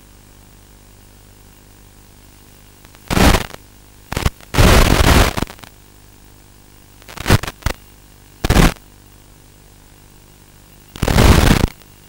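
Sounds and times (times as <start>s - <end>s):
faint background hum: 0.0s - 12.0s
radio static bursts: 3.0s - 5.7s, 7.0s - 7.8s, 8.4s - 8.8s, 10.9s - 11.8s.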